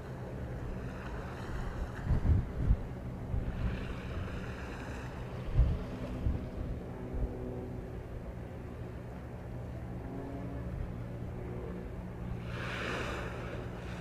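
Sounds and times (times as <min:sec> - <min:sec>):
steady low hum: 0:00.0 - 0:14.0
wind buffeting microphone: 0:01.2 - 0:07.4.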